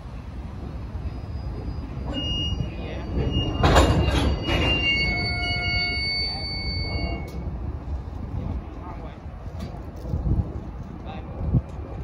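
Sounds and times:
low train rumble: 0.0 - 12.0
train wheels squealing on rail: 0.6 - 7.6.

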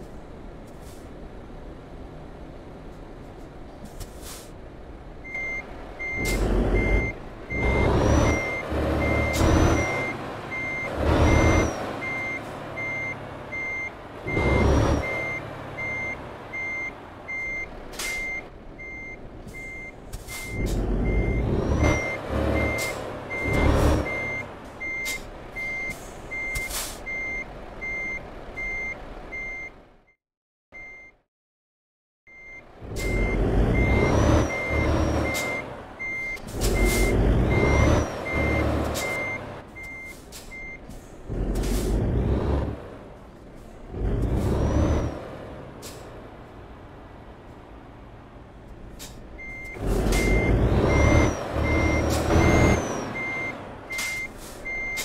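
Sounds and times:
truck engine surging: 0.3 - 29.6, 32.4 - 55.0
reversing alarm beeping: 5.3 - 29.7, 32.3 - 40.8, 49.4 - 55.0.

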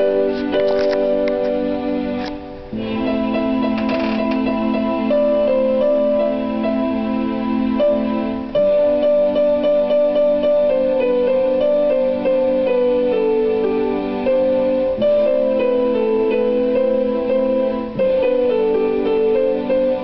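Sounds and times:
electronic keyboard melody: 0.0 - 20.0.

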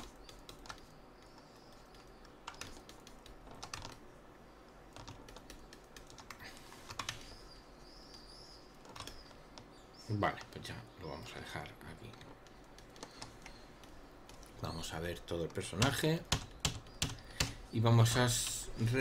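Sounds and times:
computer keyboard clicking: 0.0 - 4.0, 4.9 - 7.2, 8.8 - 9.7, 15.4 - 17.6.

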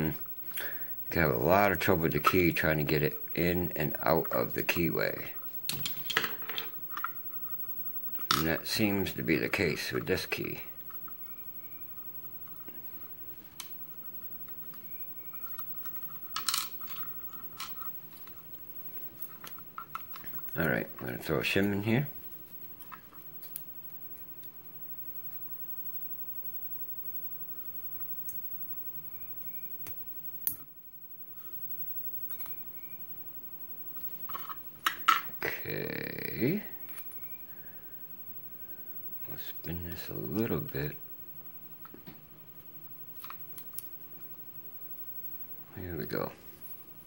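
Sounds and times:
handling noise: 0.0 - 28.7
small metal clicks: 14.7 - 18.4.

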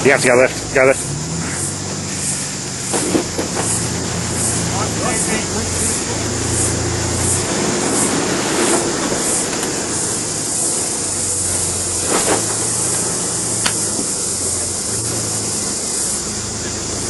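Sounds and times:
engine running at low revs: 0.0 - 17.0
crack: 2.8 - 3.8, 12.0 - 14.2.

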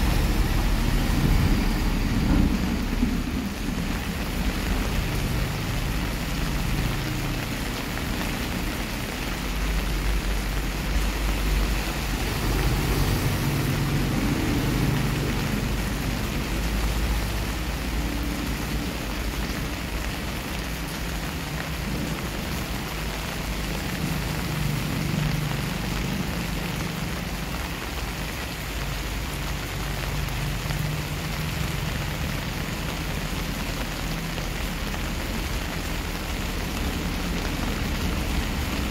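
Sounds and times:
thunder rumbling: 0.0 - 7.2
rain on concrete and foliage: 0.0 - 38.9.

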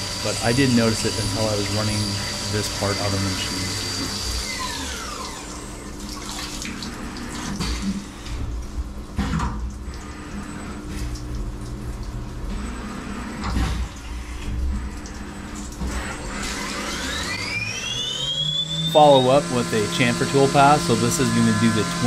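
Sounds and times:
spindle whine: 0.0 - 8.5, 9.4 - 22.0
coolant splashing and dripping: 0.2 - 22.0.

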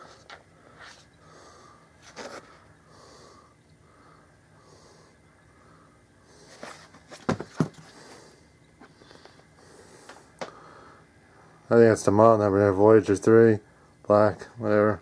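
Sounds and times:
soft breathing: 0.0 - 7.1, 7.8 - 11.6
cardboard box knocking on plastic: 7.2 - 7.8.

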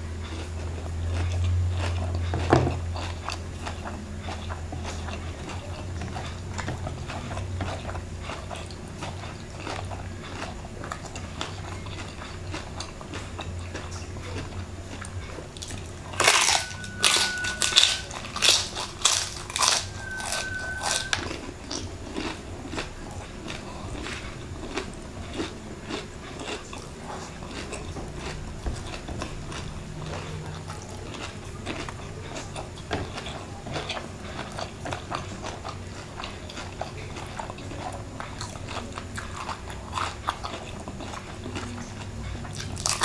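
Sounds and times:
chewing crispy chicken skin: 0.0 - 43.0.

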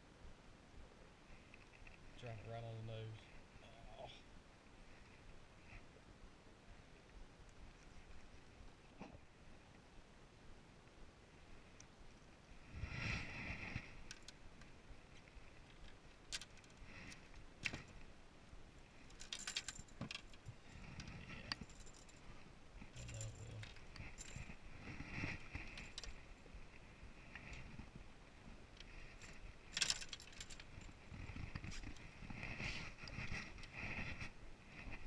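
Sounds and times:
fishing reels clinking: 25.7 - 26.2, 29.2 - 30.8.

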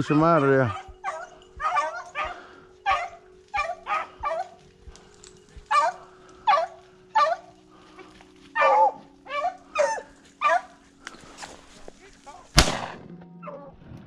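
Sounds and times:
hounds barking in yelps: 0.0 - 11.0.

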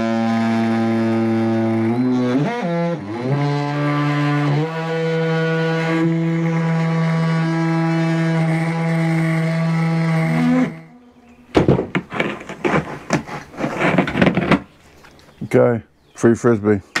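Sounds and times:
oscillating multi-tool buzzing: 0.0 - 11.0.

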